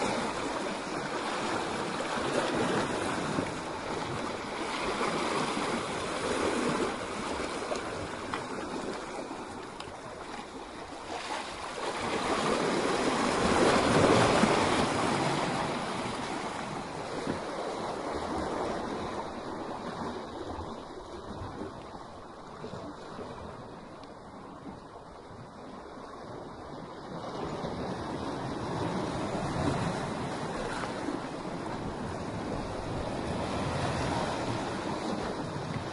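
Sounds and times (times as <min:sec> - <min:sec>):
waves breaking against rocks: 0:00.0 - 0:35.9.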